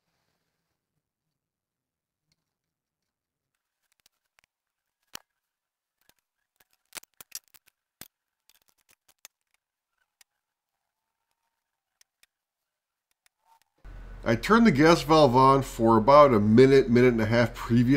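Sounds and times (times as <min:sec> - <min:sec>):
faint metallic clicks and taps: 0:11.3 - 0:12.4, 0:13.0 - 0:13.8.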